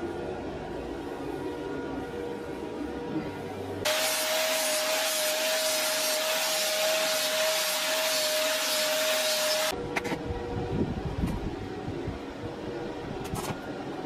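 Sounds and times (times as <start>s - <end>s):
angle grinder whining: 3.9s - 9.7s.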